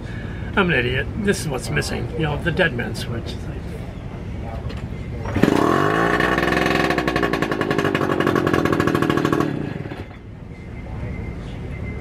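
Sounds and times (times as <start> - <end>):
outboard motor running: 5.2 - 10.2.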